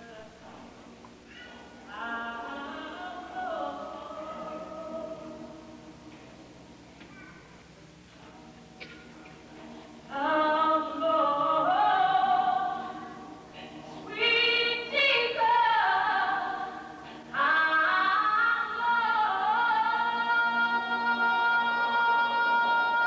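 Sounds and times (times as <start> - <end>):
choir-like singing voices: 1.9 - 5.8, 10.1 - 23.0.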